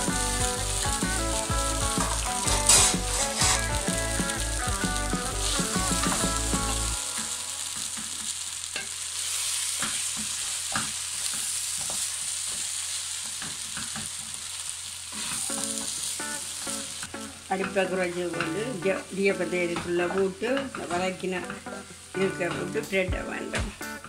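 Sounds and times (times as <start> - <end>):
frying sizzle: 0.0 - 24.0
spatula stirring food in wok: 0.1 - 17.2.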